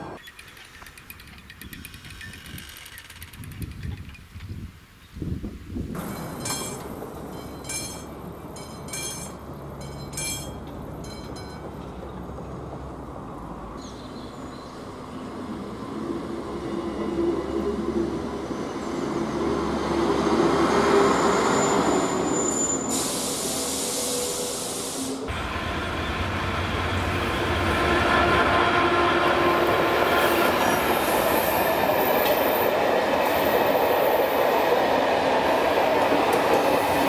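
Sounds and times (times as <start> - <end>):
train rumbling past: 5.9 - 37.0
crossing bell strokes: 6.0 - 11.7.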